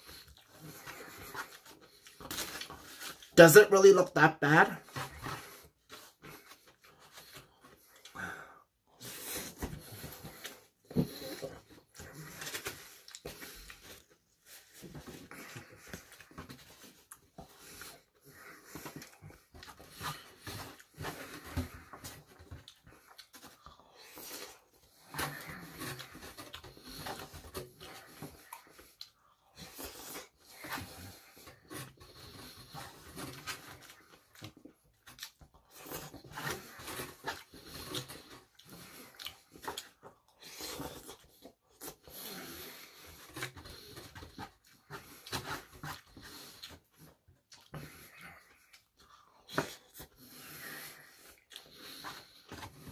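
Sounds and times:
breathing: 5.1 - 34.6, 36.0 - 52.9
chewing and wet mouth noises: 22.6 - 24.6, 33.9 - 36.2, 37.4 - 42.0, 47.5 - 47.8, 51.2 - 52.4.

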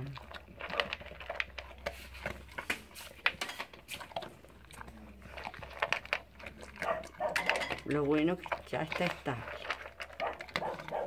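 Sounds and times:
dog crunching dry kibble: 0.0 - 11.0
kibble clicking against plastic bowl: 4.8 - 11.0.

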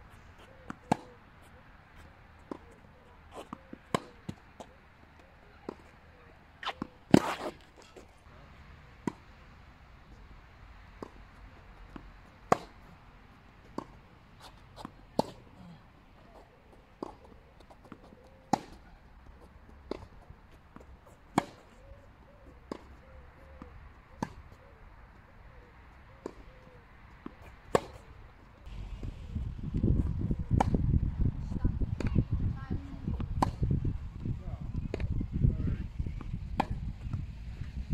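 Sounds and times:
tennis balls struck by racquets: 0.4 - 1.3, 2.0 - 4.8, 9.0 - 9.4, 10.8 - 19.0, 19.8 - 21.9, 22.5 - 24.6, 26.2 - 28.3, 33.2 - 33.7, 36.1 - 37.2.

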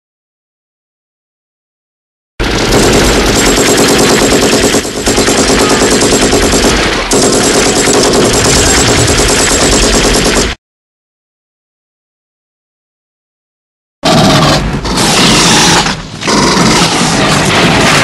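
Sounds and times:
automatic gunfire: 2.4 - 10.6.

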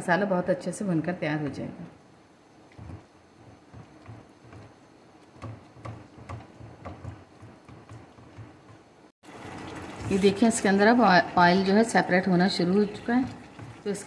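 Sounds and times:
spatula stirring in a pot: 2.6 - 14.0
spatula knocking against pot: 2.7 - 8.9.

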